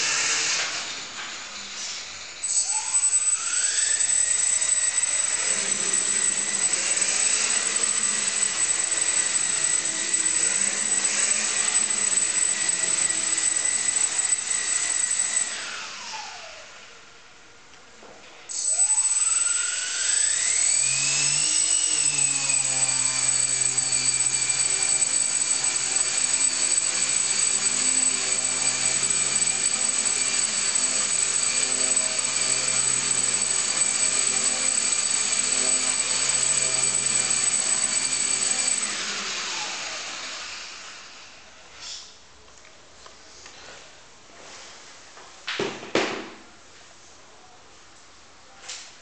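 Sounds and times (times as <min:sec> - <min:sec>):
electric motor propeller whine: 0:02.3 - 0:17.0, 0:18.5 - 0:41.4.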